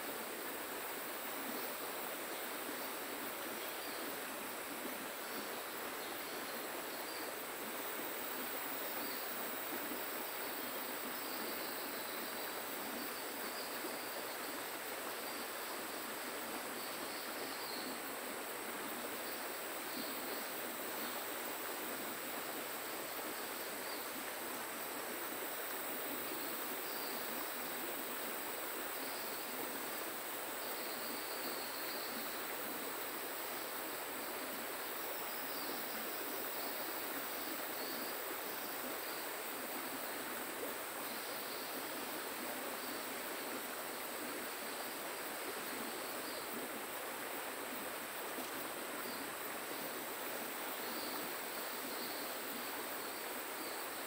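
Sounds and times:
flowing river water: 0.0 - 54.0
high insect drone: 0.1 - 54.0
faint chirps: 30.5 - 32.5.

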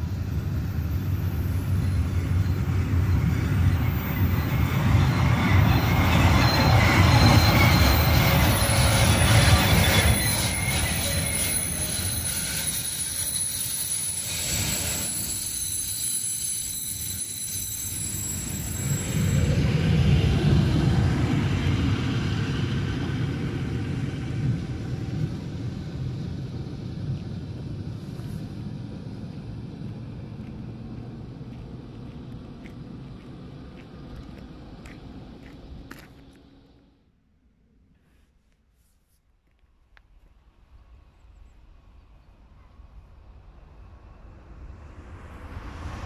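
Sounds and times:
high thin wheel squeal: 0.0 - 19.8
freight train rolling past: 0.0 - 36.8, 40.4 - 46.0.

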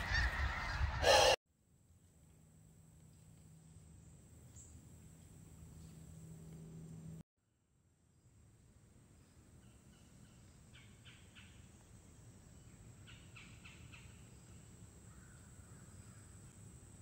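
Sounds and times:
crow cawing: 0.0 - 1.4, 15.1 - 16.2.

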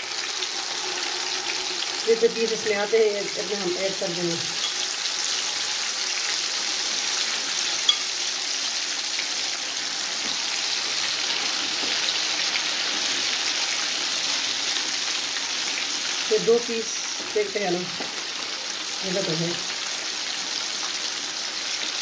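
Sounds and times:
chicken sizzling in hot oil: 0.0 - 22.0.

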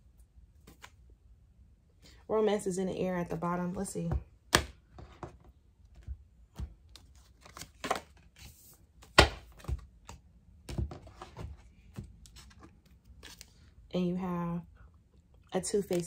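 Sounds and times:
cards shuffled and set down: 0.6 - 1.0, 4.5 - 13.6, 15.8 - 16.0.

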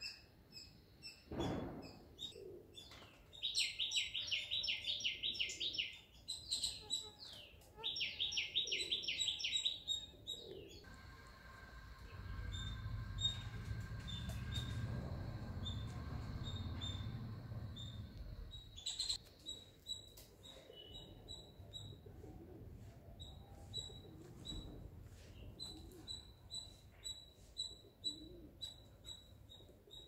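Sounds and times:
low rumble: 10.8 - 19.2.

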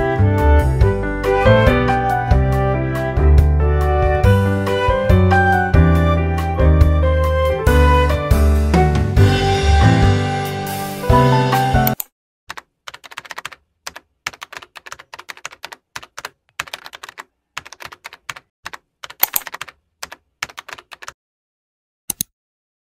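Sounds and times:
music: 0.0 - 12.0
computer keyboard typing: 11.8 - 21.2.

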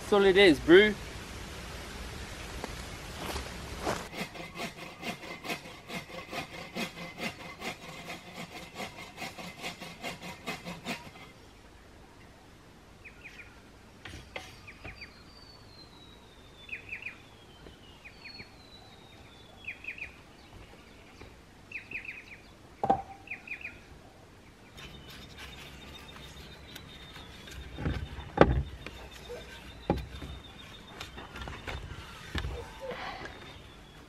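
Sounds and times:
wild birds chirping: 1.8 - 34.0
single knock: 22.8 - 23.2
dull thuds: 27.6 - 29.0.

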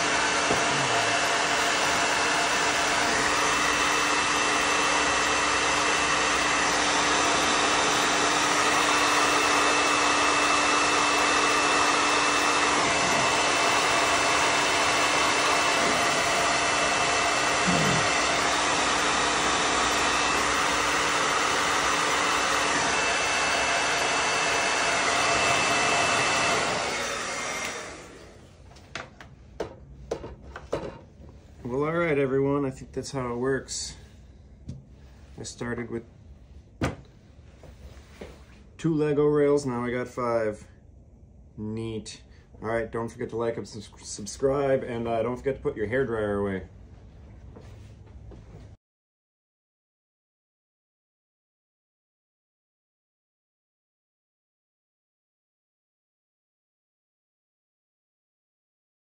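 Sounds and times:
hair dryer blowing: 0.0 - 34.0.

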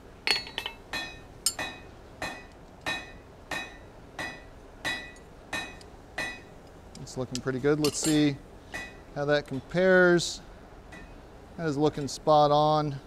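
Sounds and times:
hammer striking anvil: 0.3 - 6.5.

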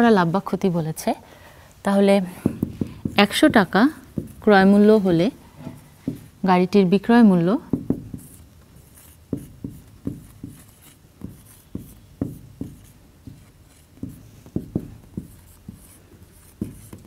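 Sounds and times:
marker writing on whiteboard: 2.3 - 6.5, 7.6 - 17.0.

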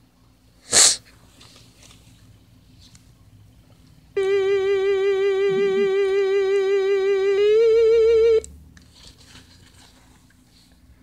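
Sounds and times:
electronic theremin-like note: 4.2 - 8.4.

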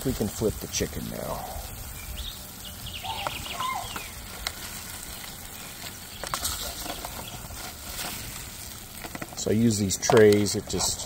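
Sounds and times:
metal utensils scraping foil tray: 4.5 - 9.5, 10.2 - 11.0.

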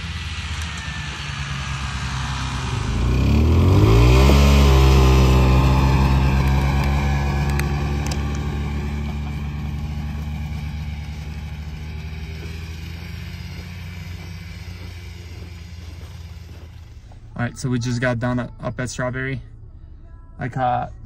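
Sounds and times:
snowmobile engine driving away: 0.0 - 18.4.

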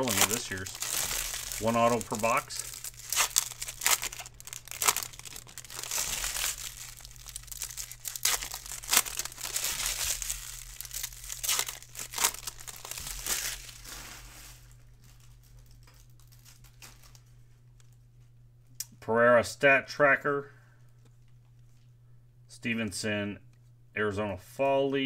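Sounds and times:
foil wrapper crinkling and tearing: 0.0 - 17.3.

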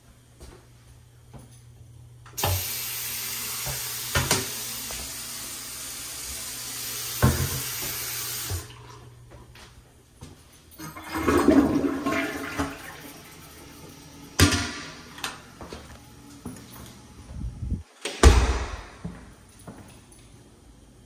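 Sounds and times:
faucet water running into basin: 2.4 - 9.0.

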